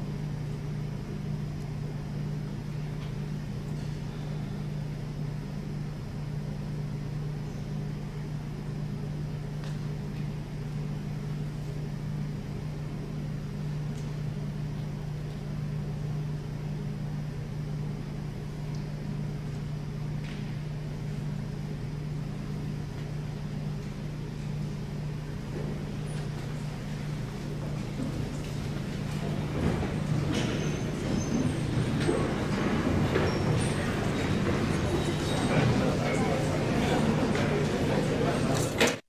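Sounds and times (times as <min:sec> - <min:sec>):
low ventilation hum: 0:00.0 - 0:39.0.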